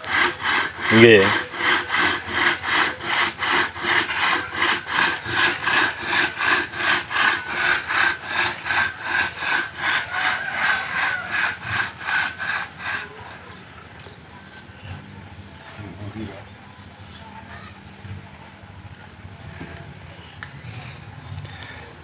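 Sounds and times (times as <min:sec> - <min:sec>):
hand saw cutting log: 0:00.0 - 0:13.6.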